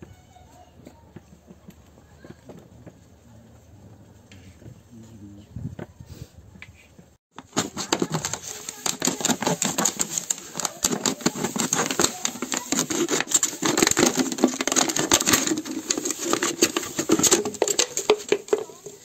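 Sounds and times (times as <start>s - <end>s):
plastic bottle crackling: 7.3s - 19.0s.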